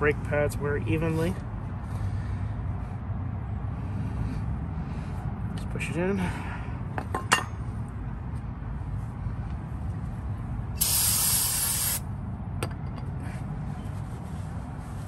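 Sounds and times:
aerosol spray hiss: 10.8s - 12.0s.

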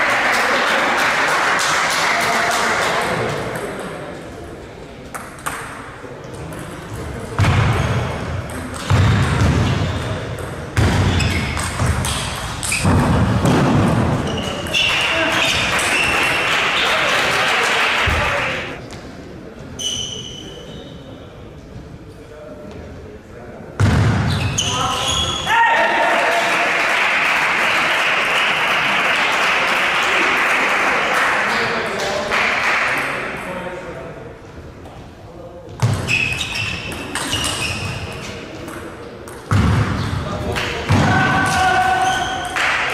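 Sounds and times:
spectators applauding: 0.0s - 3.2s, 14.9s - 18.8s, 25.8s - 33.0s.

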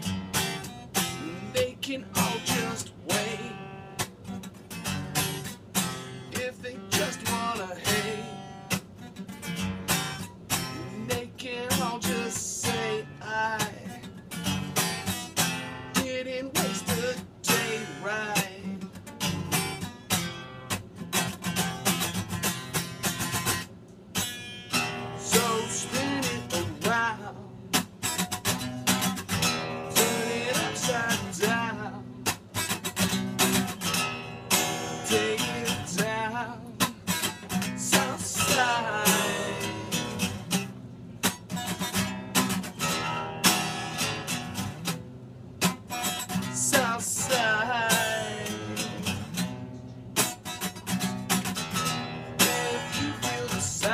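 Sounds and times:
acoustic guitar: 0.0s - 53.9s
man singing: 1.1s - 3.8s, 6.3s - 8.5s, 10.8s - 14.1s, 15.9s - 19.1s, 25.1s - 27.8s, 29.4s - 32.4s, 34.8s - 40.4s, 46.3s - 49.2s, 52.4s - 53.9s.

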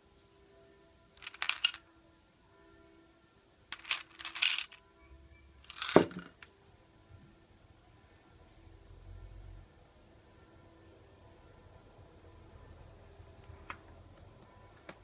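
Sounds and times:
sweets clinking in glass bowl: 1.2s - 1.8s, 3.7s - 4.8s, 5.7s - 6.4s.

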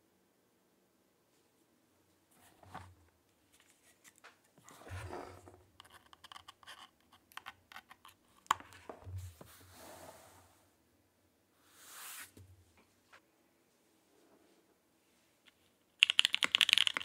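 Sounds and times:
mechanical keyboard key clacks: 16.0s - 17.0s.

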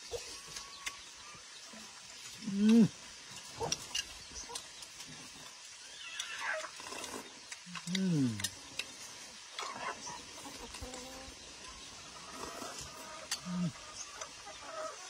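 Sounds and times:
low falling vocal sound: 2.4s - 2.9s, 7.7s - 8.5s, 13.4s - 13.9s.

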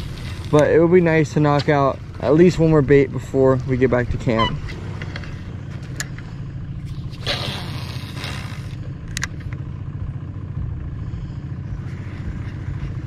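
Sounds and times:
boat motor idling: 0.0s - 13.0s.

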